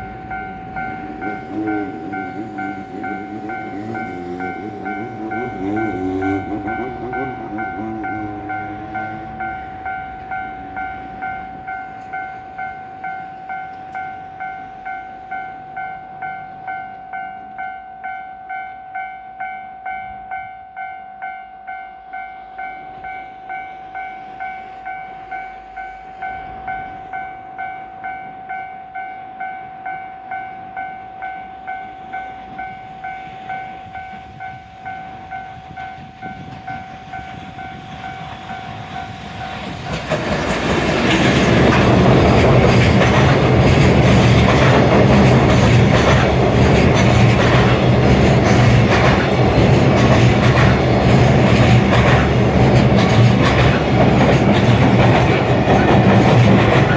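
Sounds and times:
approaching train rumble: 0.0 - 18.7, 19.4 - 56.9
level crossing alarm bell: 0.0 - 39.5.

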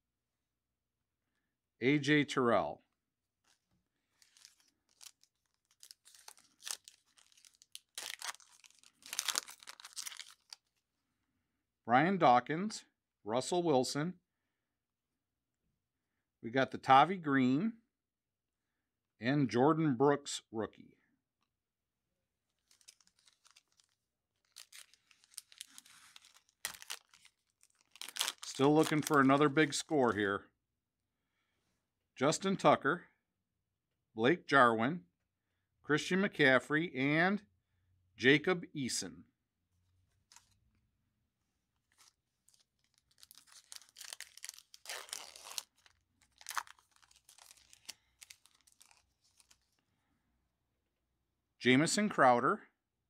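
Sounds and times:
foil wrapper crinkling: 3.5 - 10.8, 22.6 - 29.5, 40.3 - 40.6, 41.9 - 49.8
foil wrapper tearing: 4.2 - 10.7, 22.6 - 29.4, 41.9 - 49.8.

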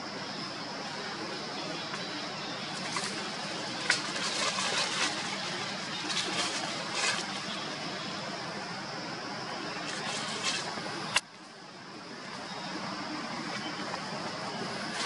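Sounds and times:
outdoor background hiss: 0.0 - 15.0
crackling rustles: 1.7 - 8.0, 9.8 - 11.6, 13.2 - 15.0.

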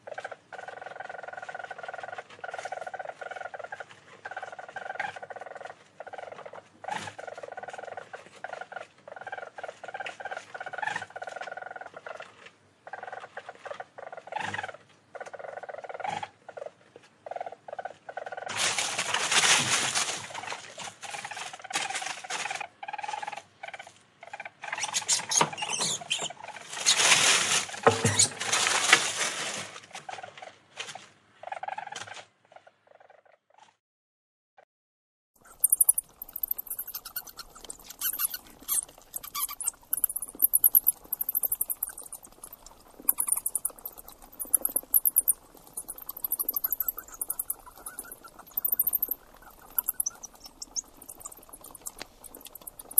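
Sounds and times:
animal chewing and crunching: 35.4 - 52.9
fruit bats squeaking: 35.4 - 52.9.

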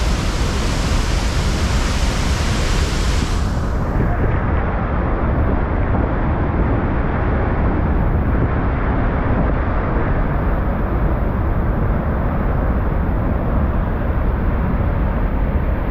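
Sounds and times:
waterfall rushing: 0.0 - 3.9.

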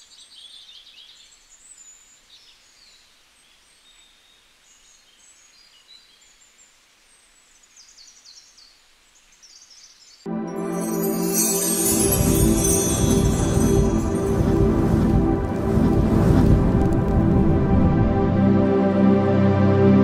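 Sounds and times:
background hiss: 0.0 - 18.2.

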